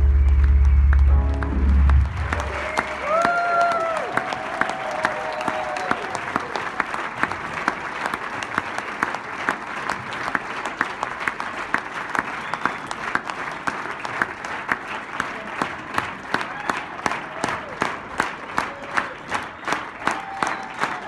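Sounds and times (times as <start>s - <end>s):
held musical note: 0.0s - 3.0s
audience applauding: 0.0s - 21.0s.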